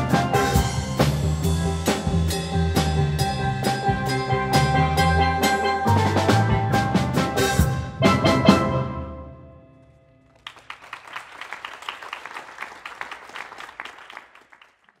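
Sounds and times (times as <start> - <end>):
audience applauding: 10.3 - 15.0.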